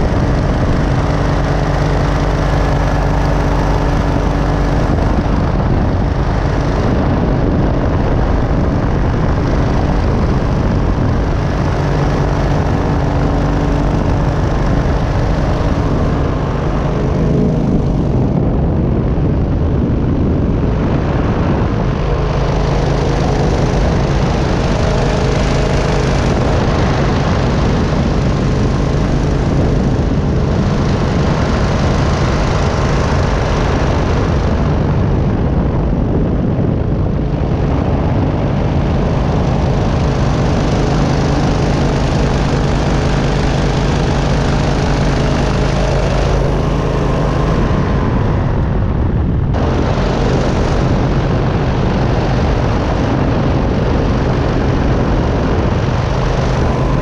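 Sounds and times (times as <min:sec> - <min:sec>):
engine and propeller running: 0:00.0 - 0:57.0.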